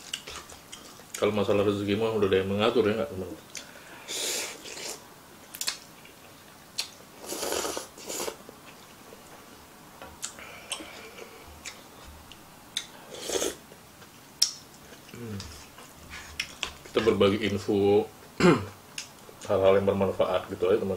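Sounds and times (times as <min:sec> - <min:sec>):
person slurping noodles: 0:04.1 - 0:05.0, 0:07.2 - 0:08.4, 0:13.1 - 0:13.6.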